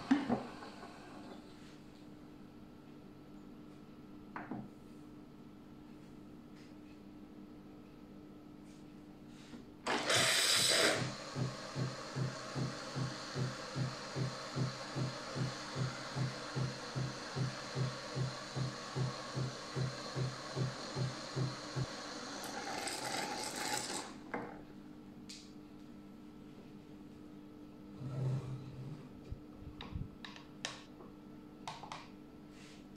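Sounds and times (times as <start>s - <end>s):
coffee machine hissing: 0.0s - 1.5s, 9.9s - 24.2s
pump pulsing: 9.9s - 24.0s.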